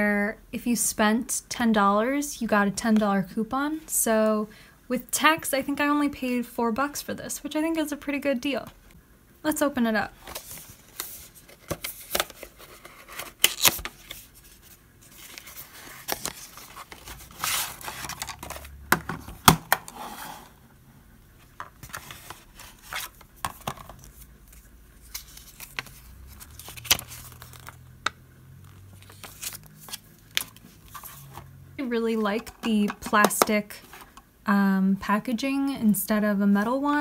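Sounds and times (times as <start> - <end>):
paper rustling: 10.2 - 18.8, 21.4 - 27.9, 28.7 - 31.5.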